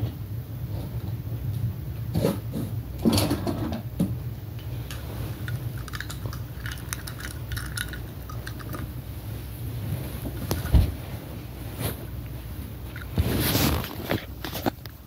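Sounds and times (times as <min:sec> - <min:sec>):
low steady rumble: 0:00.0 - 0:15.0
plastic and cardboard crinkling: 0:12.8 - 0:15.0.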